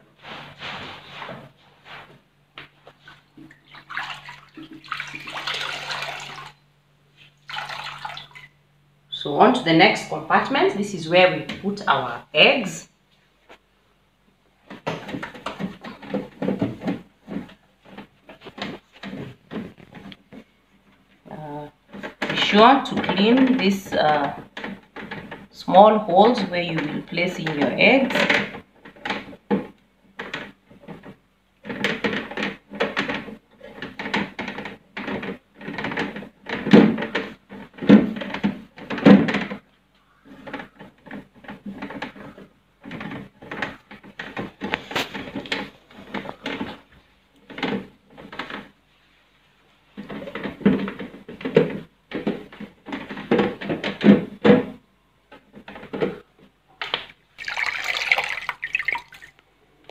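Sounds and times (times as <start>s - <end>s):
damp cloth scrubbing plastic: 2.9s - 6.6s, 57.4s - 59.9s.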